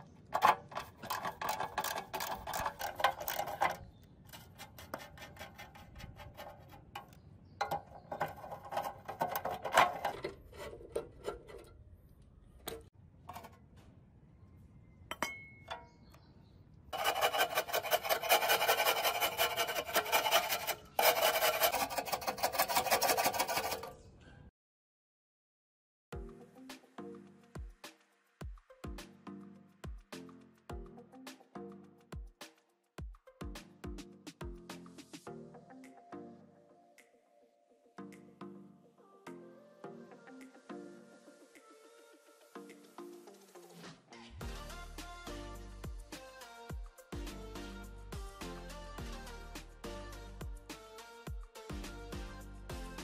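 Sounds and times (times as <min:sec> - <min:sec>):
steel scraper grating rust: 0:00.3 - 0:11.8, 0:17.0 - 0:24.0
socket wrench ratcheting: 0:00.4 - 0:03.8.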